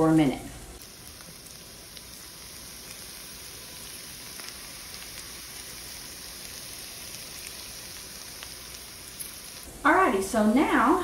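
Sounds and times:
potatoes sizzling in a skillet: 0:00.8 - 0:11.0.

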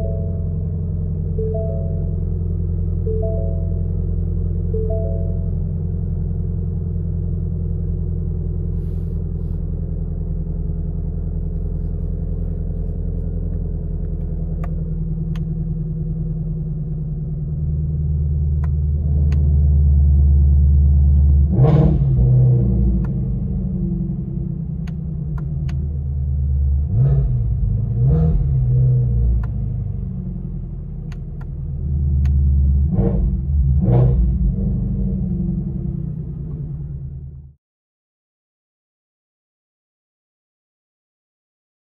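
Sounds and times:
car engine idling: 0:00.0 - 0:21.5, 0:22.9 - 0:33.8
engine revving: 0:18.2 - 0:37.5.

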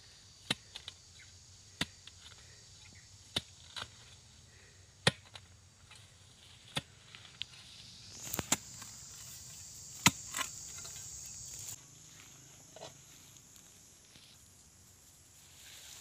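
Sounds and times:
machete chopping into soil: 0:03.3 - 0:04.2, 0:05.0 - 0:06.0, 0:08.1 - 0:11.8.

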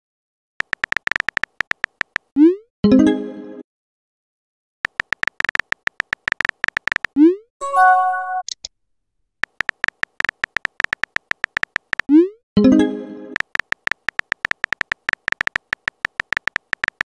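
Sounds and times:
phone keyboard tap clicks: 0:00.6 - 0:02.3, 0:04.9 - 0:07.2, 0:09.4 - 0:12.1, 0:13.4 - 0:17.0.

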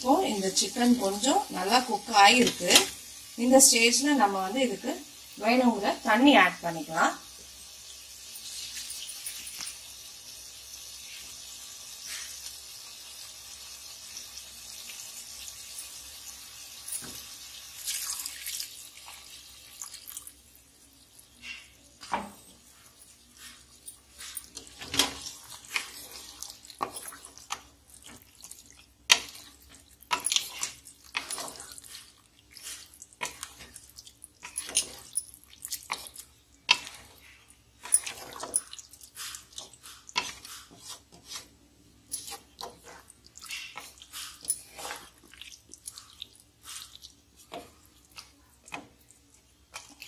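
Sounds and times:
spoon stirring wet gravy: 0:21.4 - 0:50.0
spoon scraping pot: 0:35.8 - 0:45.3.

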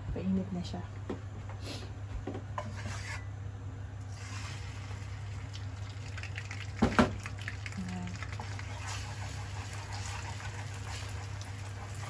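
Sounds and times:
egg sizzling in hot oil: 0:04.0 - 0:12.0.

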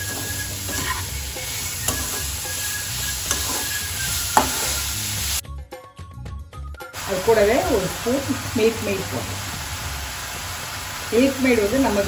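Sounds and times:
metal spoon scraping a pan: 0:00.0 - 0:05.0
food sizzling in a pan: 0:00.0 - 0:05.4, 0:07.0 - 0:12.0.

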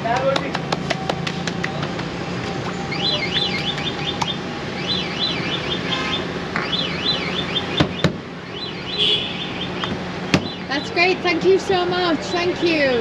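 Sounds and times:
electronic alarm warbling: 0:02.8 - 0:11.0
sharp knocks: 0:09.8 - 0:10.6.

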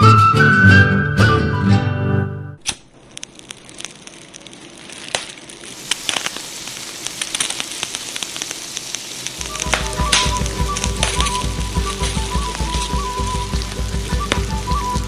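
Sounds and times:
meat deep-frying with crackles: 0:02.8 - 0:15.0
music with low beat: 0:09.4 - 0:15.0.

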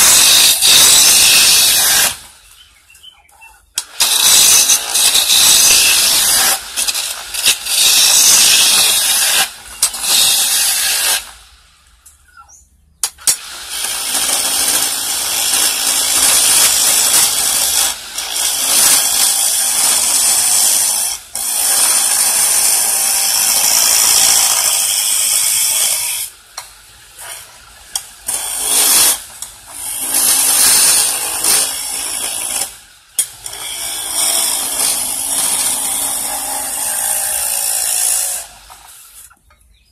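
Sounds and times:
chisel scraping wood on lathe: 0:04.0 - 0:11.2.

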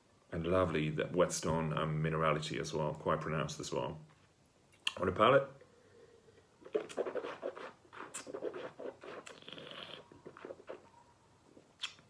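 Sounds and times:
wine slurping in mouth: 0:06.6 - 0:10.9.

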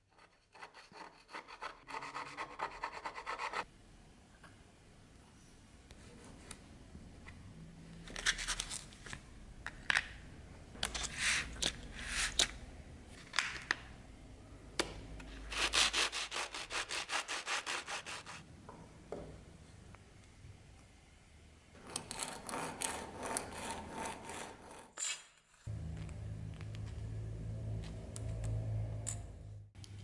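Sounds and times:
metal being scraped and filed: 0:00.0 - 0:03.7, 0:15.5 - 0:18.4, 0:21.8 - 0:25.0.

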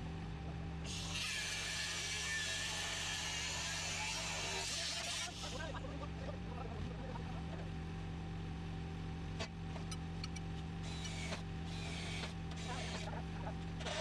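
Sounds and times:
steady machine hum: 0:05.3 - 0:14.0.

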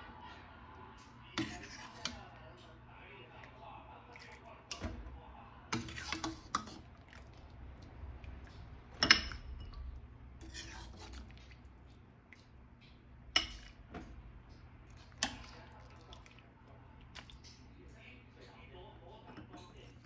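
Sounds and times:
low steady hum: 0:00.0 - 0:20.0
utensils clinking on dishes: 0:08.9 - 0:11.0, 0:12.9 - 0:14.1.

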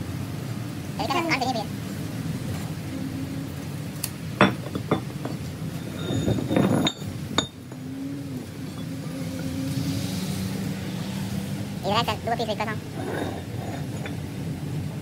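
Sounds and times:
metal pieces clinking and knocking: 0:04.4 - 0:07.8, 0:13.1 - 0:14.3.

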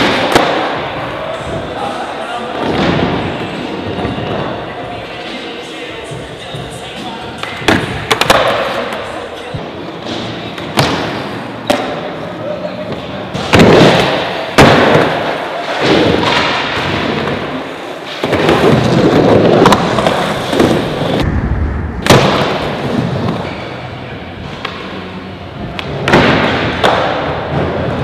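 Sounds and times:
skateboards cracking and landing: 0:07.4 - 0:09.1, 0:13.3 - 0:21.2, 0:25.8 - 0:28.0
skateboard wheels rolling on concrete: 0:12.2 - 0:21.3.

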